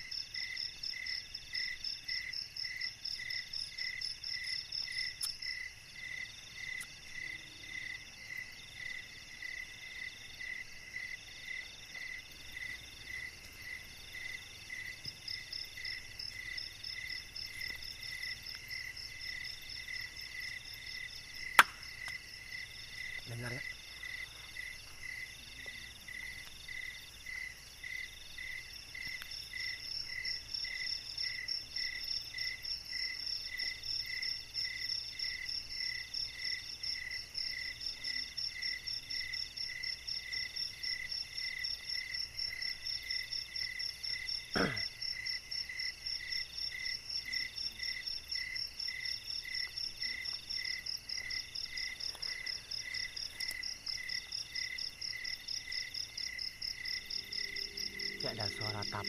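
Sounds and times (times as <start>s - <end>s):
crickets chirping: 0.0s - 59.0s
slow pulsing insect call: 0.0s - 59.0s
fast high insect trill: 55.8s - 59.0s.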